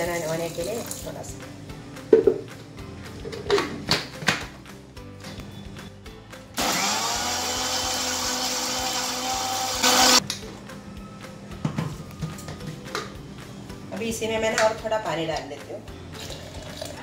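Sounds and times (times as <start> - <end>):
blender motor whining: 6.6 - 10.2.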